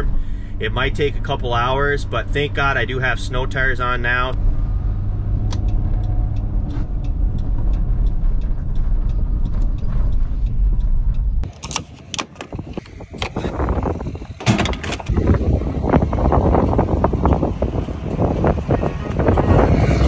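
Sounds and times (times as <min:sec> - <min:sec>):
car road noise rumble: 0:00.0 - 0:20.0
scattered clicks and knocks: 0:14.3 - 0:15.1.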